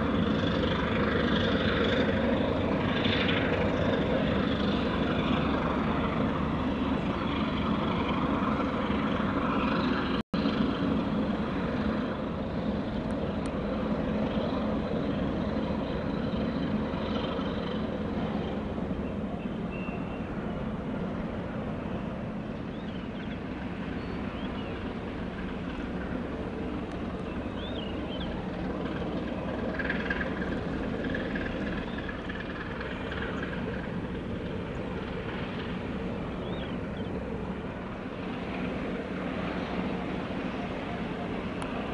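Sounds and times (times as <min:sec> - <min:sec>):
low engine drone: 0:00.0 - 0:41.9.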